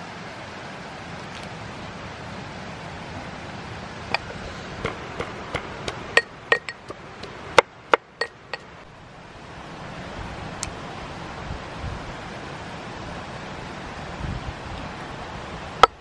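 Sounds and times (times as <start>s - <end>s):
metal mortar and pestle clinking: 4.1s - 8.7s.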